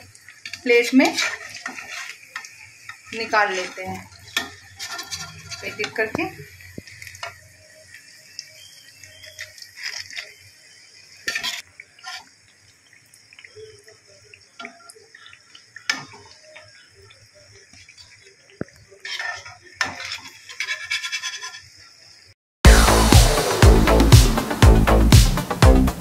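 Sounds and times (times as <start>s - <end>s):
fish sizzling in hot oil: 0.0s - 23.6s
metal spoon scraping pan: 0.8s - 6.5s, 11.2s - 12.3s, 19.0s - 21.7s.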